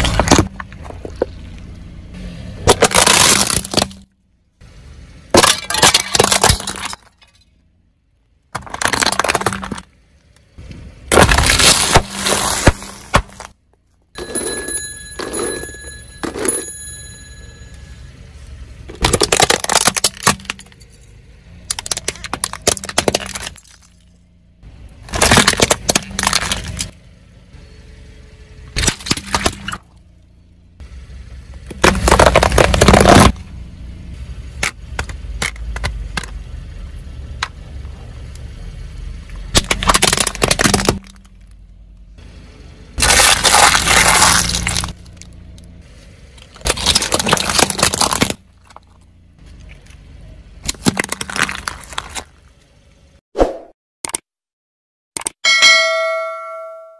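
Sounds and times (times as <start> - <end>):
tyre crushing plastic: 2.6 - 4.0, 8.5 - 9.9, 11.1 - 13.6, 18.9 - 20.8, 21.7 - 23.9, 25.1 - 26.9, 31.7 - 33.4, 39.5 - 41.5, 43.0 - 45.2, 46.4 - 49.0, 50.6 - 52.4.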